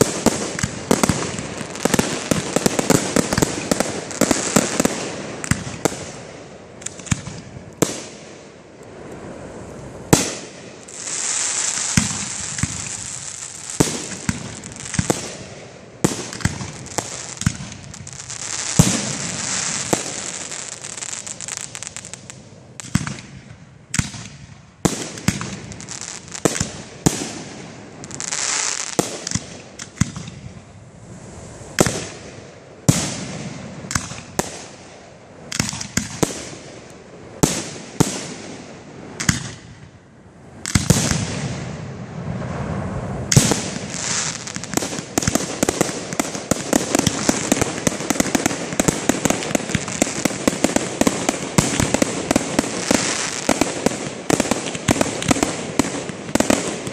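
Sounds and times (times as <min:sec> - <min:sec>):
high crackling hiss: 0:00.0 - 0:56.9
firework shells bursting: 0:10.1 - 0:27.4, 0:43.3 - 0:56.9.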